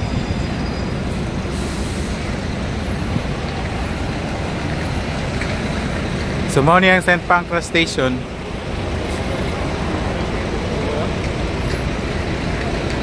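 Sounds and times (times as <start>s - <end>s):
traffic rumble: 0.0s - 13.0s
brief hiss in traffic: 1.0s - 2.3s.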